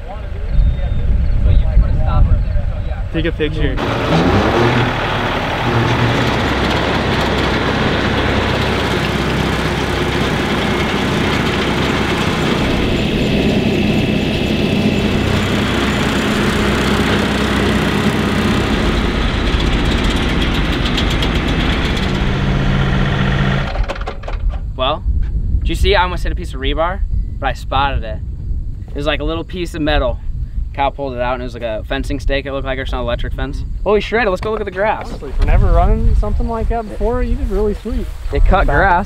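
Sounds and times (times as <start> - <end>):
rotary cutter cutting grass: 3.8 - 23.9
tractor diesel engine running: 3.8 - 24.3.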